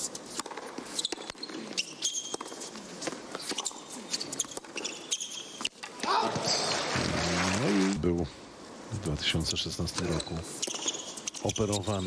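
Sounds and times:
shoes squeaking on court: 0:00.0 - 0:06.8, 0:10.0 - 0:12.0.

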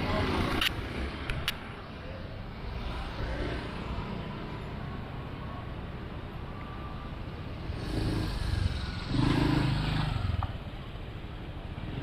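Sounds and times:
motor scooter passing by: 0:07.7 - 0:10.4.

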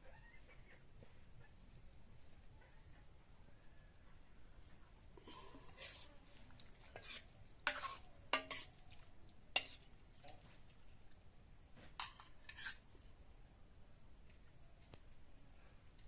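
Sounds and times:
ladle scraping wok: 0:05.4 - 0:08.8, 0:09.5 - 0:10.4, 0:11.9 - 0:12.8.

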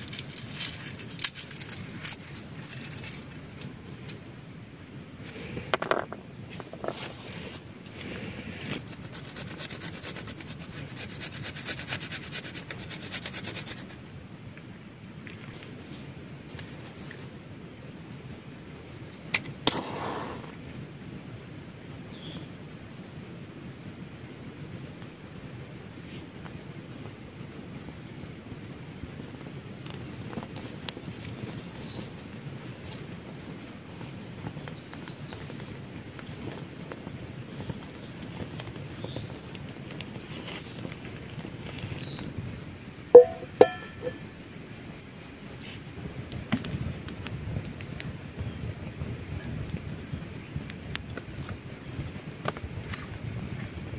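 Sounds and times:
fire crackling and popping: 0:00.0 - 0:06.5, 0:08.0 - 0:14.1, 0:19.4 - 0:20.6, 0:28.9 - 0:42.6, 0:45.4 - 0:53.9
low fire rumble: 0:25.6 - 0:43.0, 0:45.4 - 0:53.9.

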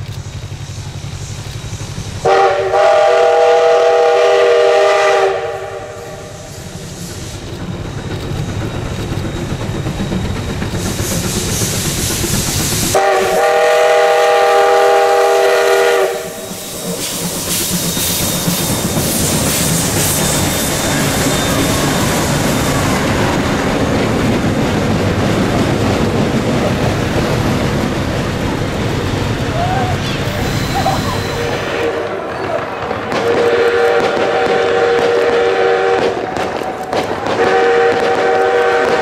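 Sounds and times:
steam hissing: 0:00.0 - 0:39.0
steam whistle blasts: 0:02.2 - 0:07.4, 0:12.9 - 0:23.0, 0:30.4 - 0:32.2, 0:33.1 - 0:36.4, 0:37.2 - 0:39.0.

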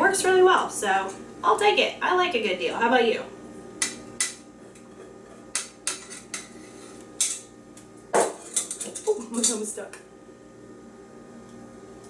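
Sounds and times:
spatula scraping metal bowl: 0:05.9 - 0:07.0.

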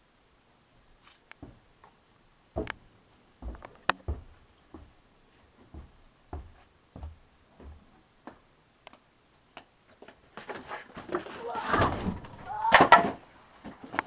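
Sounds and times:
footsteps on carpeted stairs: 0:01.4 - 0:01.7, 0:02.5 - 0:08.5.

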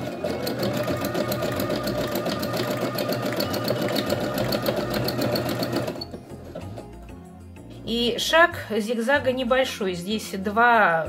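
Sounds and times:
sewing machine stitching: 0:00.0 - 0:06.8.

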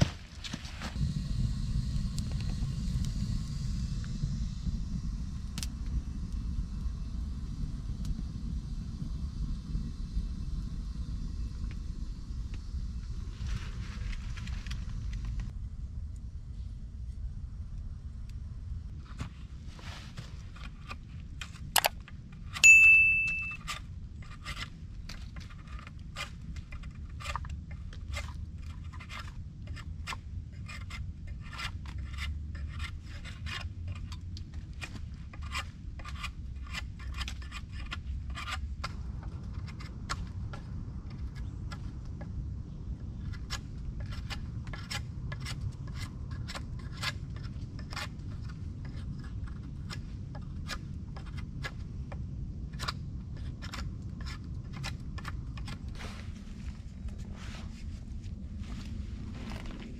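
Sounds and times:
digging tool scraping soil: 0:19.0 - 0:22.6, 0:23.4 - 0:41.9, 0:43.2 - 0:51.8, 0:52.7 - 0:59.9
ringing metal clang: 0:22.6 - 0:23.7.

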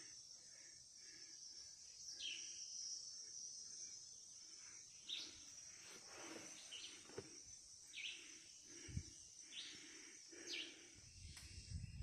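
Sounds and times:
insect drone: 0:00.0 - 0:12.0
bird chirping: 0:00.5 - 0:05.8, 0:07.9 - 0:12.0.

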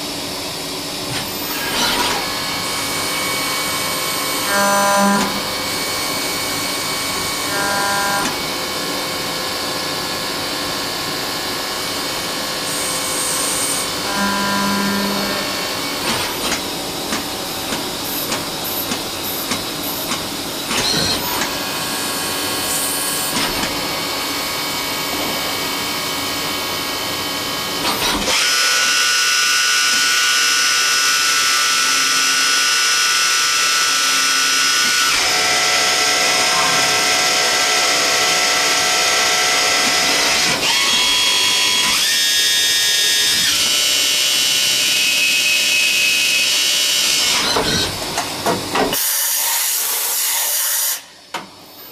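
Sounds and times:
lathe machining: 0:00.1 - 0:48.4
high spindle whine: 0:11.8 - 0:27.9.

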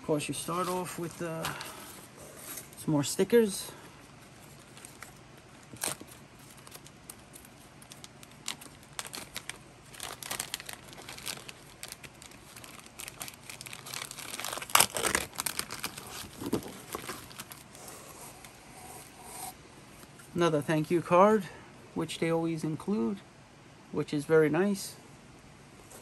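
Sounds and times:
packaging crinkling and rustling: 0:04.0 - 0:17.8.

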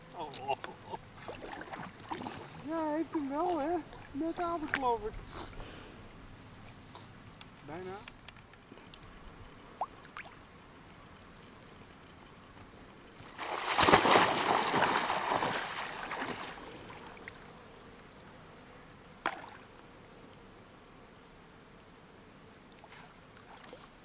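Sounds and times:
dog splashing through water: 0:13.3 - 0:17.2.

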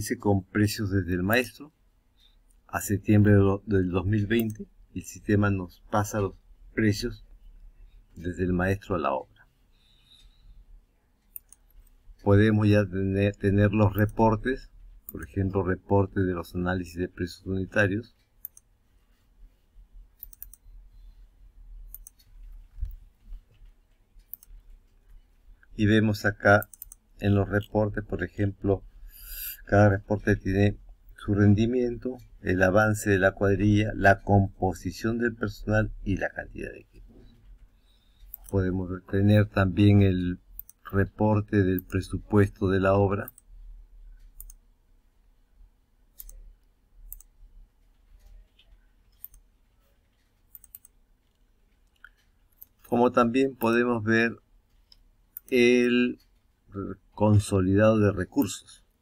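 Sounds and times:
faint low hum: 0:00.0 - 0:59.0
computer mouse clicks: 0:04.3 - 0:04.7, 0:09.8 - 0:10.6, 0:11.2 - 0:12.4, 0:13.2 - 0:15.4, 0:18.1 - 0:19.2, 0:20.2 - 0:25.7, 0:26.5 - 0:27.8, 0:37.1 - 0:38.7, 0:40.5 - 0:42.3, 0:43.2 - 0:44.7, 0:46.1 - 0:53.0, 0:54.6 - 0:56.5.

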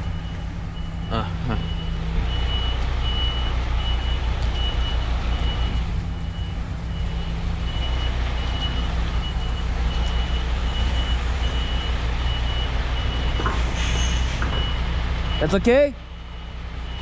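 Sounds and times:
diesel engine at low revs: 0:00.0 - 0:17.0
reversing alarm beeping: 0:00.0 - 0:17.0.

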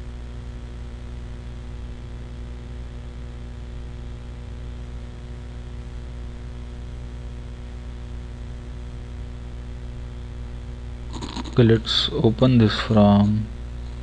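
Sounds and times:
low electrical hum: 0:00.0 - 0:14.0
even hiss: 0:11.1 - 0:14.0.

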